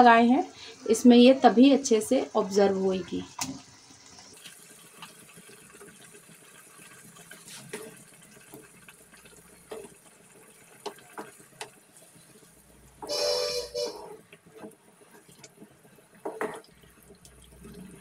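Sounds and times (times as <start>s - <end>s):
gravy bubbling in a pan: 3.3s - 13.0s, 14.1s - 18.0s.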